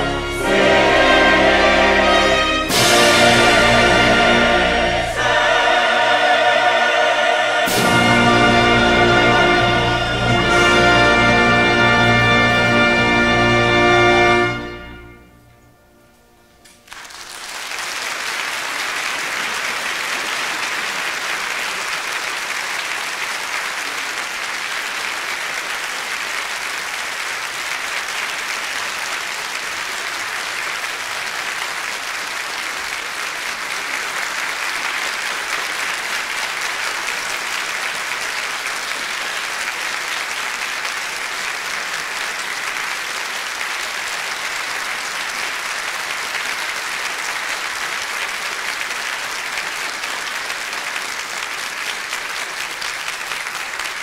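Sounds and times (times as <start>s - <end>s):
large audience applauding: 0.0s - 15.0s, 16.6s - 54.0s.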